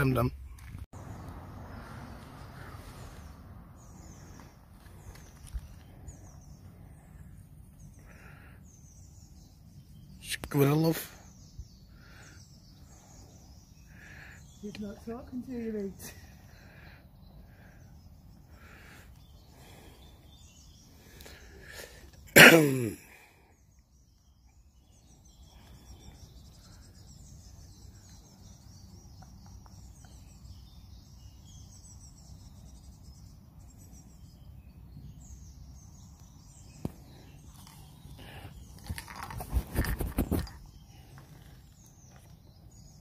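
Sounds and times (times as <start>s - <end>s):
faint birdsong: 0.0s - 43.0s
outdoor background noise: 0.0s - 43.0s.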